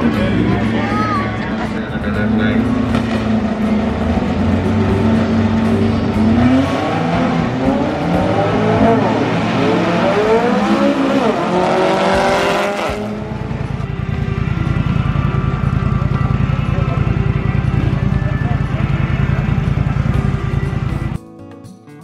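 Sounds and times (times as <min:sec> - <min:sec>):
engine idling: 0:00.0 - 0:08.9, 0:13.0 - 0:21.2
car engine accelerating: 0:00.0 - 0:21.2.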